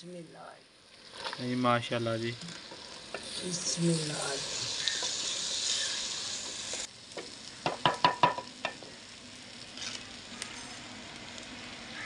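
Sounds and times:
potatoes sizzling in oil: 0.1s - 12.0s
wooden spoon knocking clay pot: 7.6s - 8.9s.

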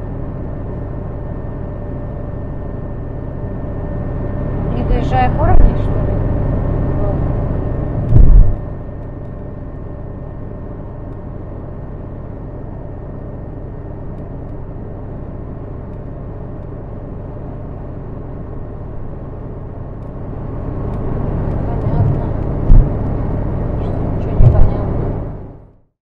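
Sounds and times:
car road and engine noise: 0.0s - 25.7s
heavy low thump: 8.0s - 8.7s, 21.8s - 23.1s, 24.4s - 24.8s.

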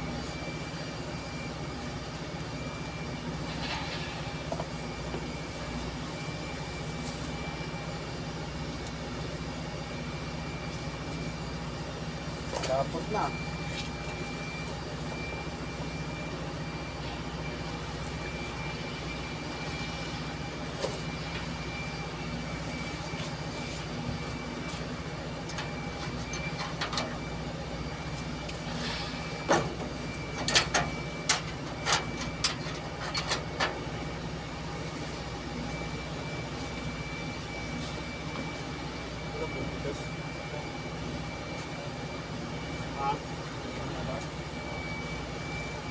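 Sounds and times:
heavy machinery engine drone: 0.0s - 45.9s
thin steady whine: 0.0s - 45.9s.

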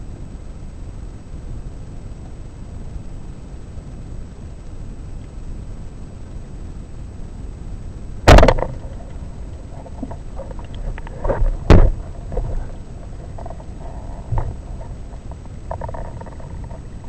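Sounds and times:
loud sharp knock: 8.3s - 9.1s.

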